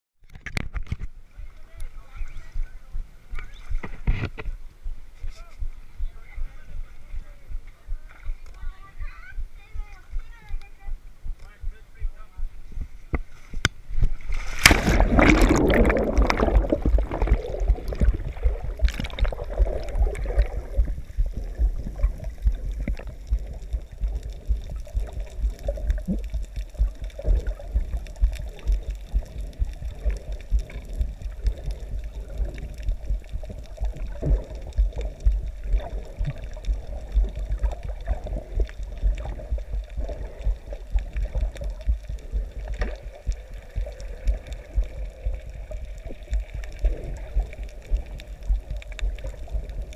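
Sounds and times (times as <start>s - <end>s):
low underwater thuds: 2.6s - 49.9s
water gurgling underwater: 13.9s - 49.9s
rush of bubbles: 14.2s - 49.9s.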